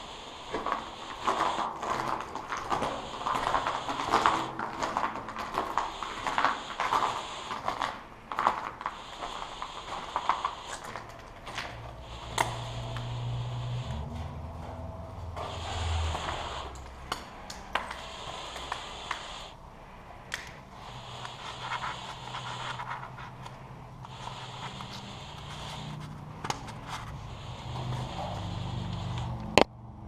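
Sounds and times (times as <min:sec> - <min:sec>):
low steady hum: 0:00.0 - 0:30.0
footsteps crunching on debris: 0:00.5 - 0:12.8.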